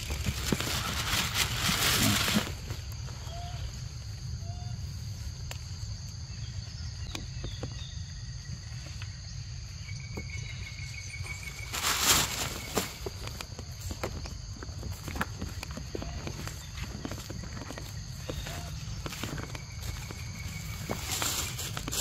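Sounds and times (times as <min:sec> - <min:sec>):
loud rustle: 0:00.0 - 0:02.8, 0:11.6 - 0:13.0
insects droning: 0:00.0 - 0:22.0
bird chirps: 0:16.0 - 0:21.3.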